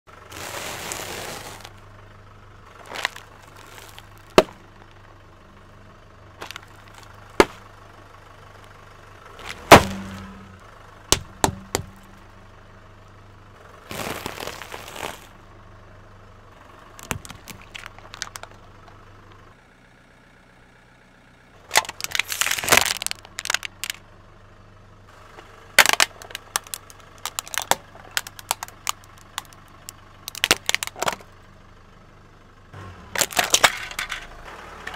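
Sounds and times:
car engine idling: 0:00.0 - 0:34.9
tyre crushing crunchy snacks: 0:00.3 - 0:01.8, 0:02.7 - 0:05.0, 0:06.4 - 0:07.7, 0:09.4 - 0:10.3, 0:13.9 - 0:15.3, 0:17.0 - 0:19.0, 0:21.7 - 0:24.0, 0:25.8 - 0:31.3, 0:33.2 - 0:34.2.

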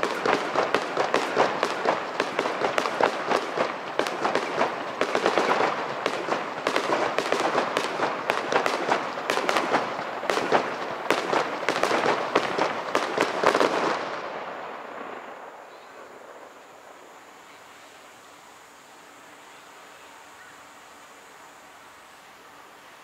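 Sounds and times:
fireworks bangs and crackles: 0:00.0 - 0:17.2.

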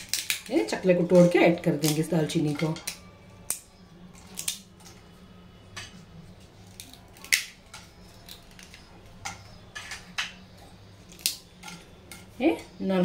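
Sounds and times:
bark snapping cracks: 0:00.0 - 0:00.5, 0:02.8 - 0:04.9, 0:06.7 - 0:09.4, 0:11.1 - 0:11.8.

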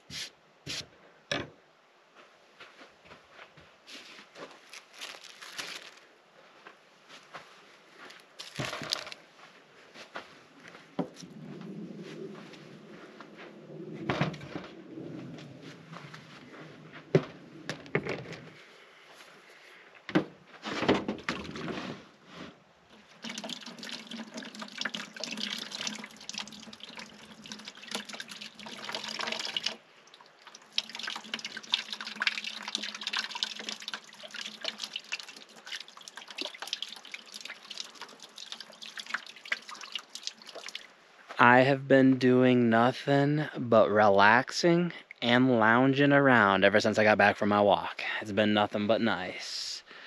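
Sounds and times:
water splashing into bucket: 0:23.0 - 0:40.9.

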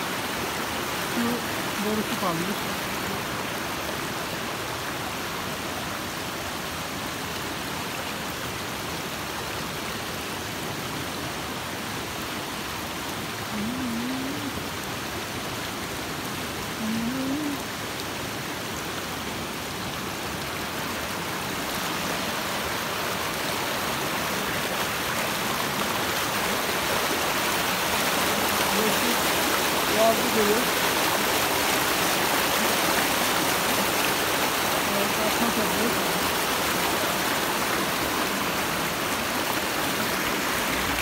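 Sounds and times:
stream rushing over rocks: 0:00.0 - 0:41.0.

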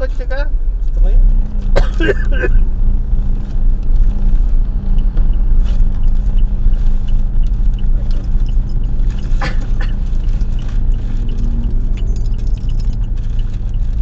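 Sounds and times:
car engine and road rumble: 0:00.0 - 0:14.0
light regular ticking: 0:00.8 - 0:14.0.

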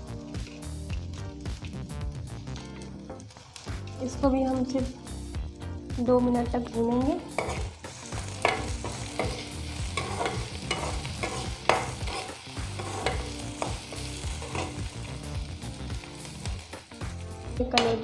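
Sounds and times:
vegetables sizzling in oil: 0:00.0 - 0:18.0
spatula scraping a pan: 0:07.3 - 0:15.0.

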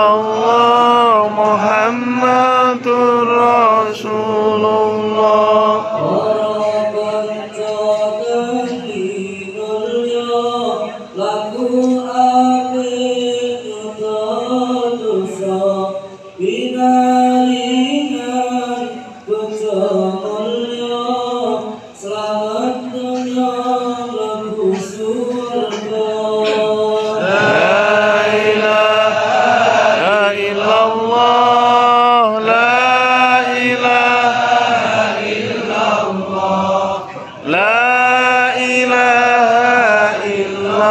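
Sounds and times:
men chanting: 0:00.0 - 0:40.9
louder voice leading chant: 0:25.7 - 0:30.3.

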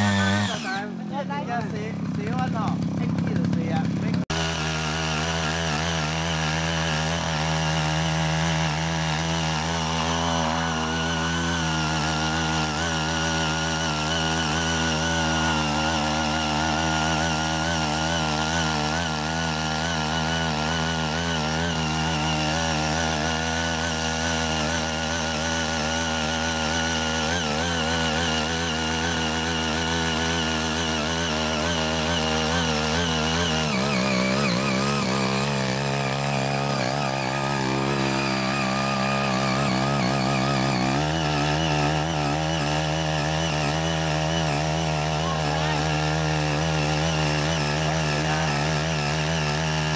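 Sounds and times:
small engine running under load: 0:00.0 - 0:49.9
tines churning soil: 0:00.0 - 0:49.9.

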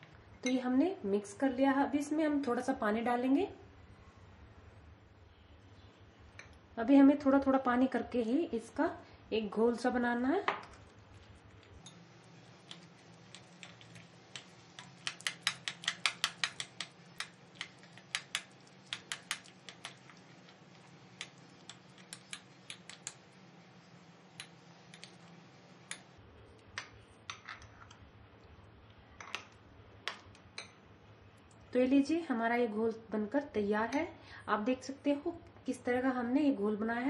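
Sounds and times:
spoon tapping bowl while stirring: 0:11.6 - 0:23.2, 0:24.3 - 0:26.1, 0:29.2 - 0:30.8.

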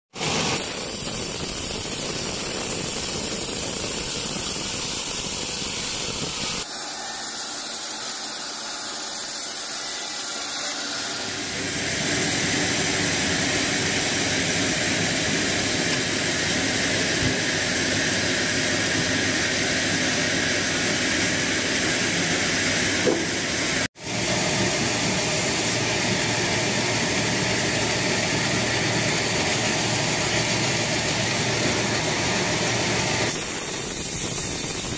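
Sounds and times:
band sawmill sawing a log: 0:00.2 - 0:23.4, 0:24.0 - 0:34.2.

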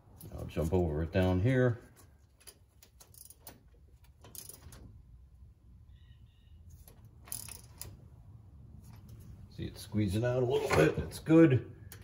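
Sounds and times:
wrench clicking on bolts: 0:02.4 - 0:04.8, 0:07.2 - 0:08.0.

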